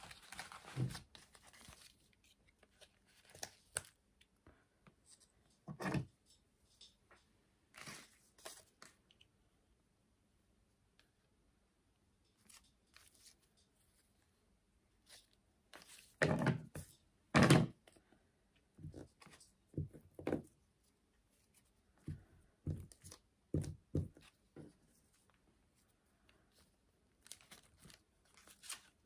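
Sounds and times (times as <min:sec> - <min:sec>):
paper and markers handled: 0:00.0 - 0:04.0, 0:07.8 - 0:09.0, 0:18.8 - 0:29.0.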